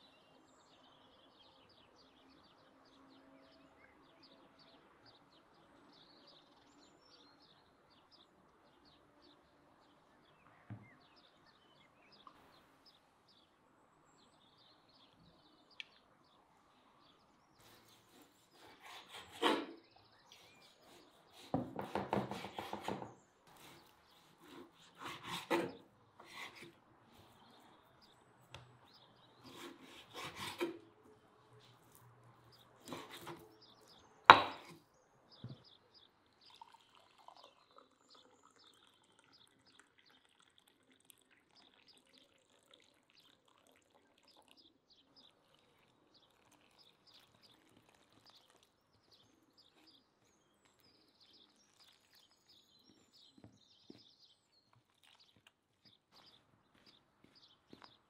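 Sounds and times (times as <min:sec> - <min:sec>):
knife knocking on cutting board: 0:34.3 - 0:34.7.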